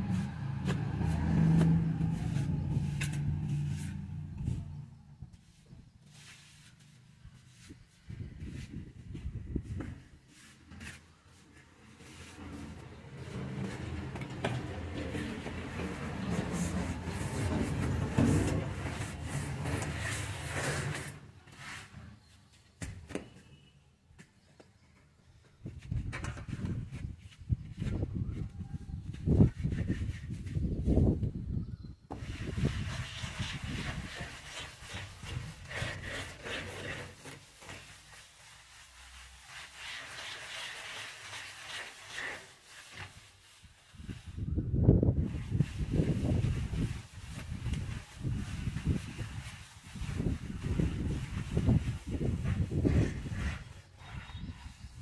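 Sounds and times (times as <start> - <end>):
straightedge scraping wet plaster: 10.4 - 22.2, 32.1 - 43.4, 48.6 - 55.0.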